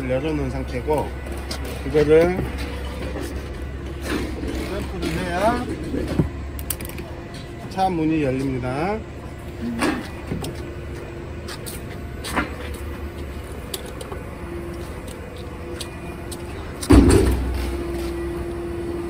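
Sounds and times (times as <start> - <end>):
low mechanical hum: 0.0 - 19.0
heavy thump: 16.9 - 17.8.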